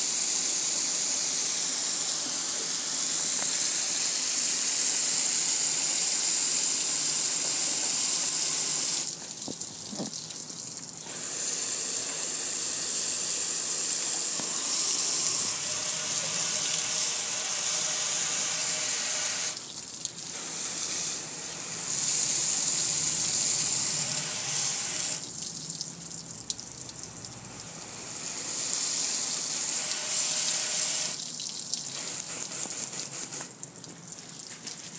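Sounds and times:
water splashing and dripping: 0:09.1 - 0:11.1, 0:19.6 - 0:20.3, 0:31.2 - 0:32.3, 0:33.4 - 0:34.9
water jet spraying on metal grill: 0:11.1 - 0:19.7, 0:28.0 - 0:31.2, 0:31.9 - 0:33.5.

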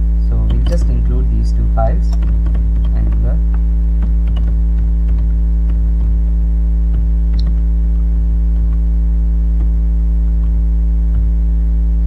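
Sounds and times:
electrical mains hum: 0:00.0 - 0:12.0
computer keyboard clicks: 0:00.4 - 0:01.3, 0:02.0 - 0:06.1.

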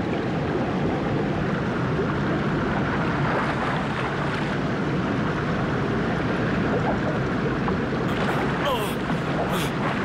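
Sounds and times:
rushing water: 0:00.0 - 0:10.0
wind: 0:00.0 - 0:10.0
heavy rain: 0:08.1 - 0:10.0.

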